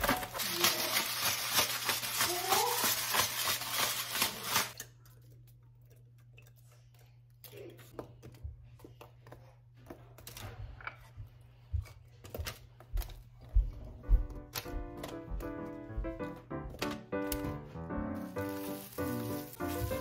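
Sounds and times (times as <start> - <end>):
paper rustling: 0.0 - 4.8, 18.2 - 20.0.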